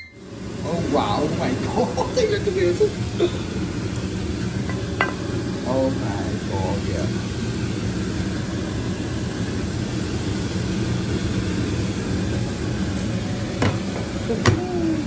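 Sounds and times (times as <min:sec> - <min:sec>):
fan-like whirring hum: 0:00.0 - 0:15.0.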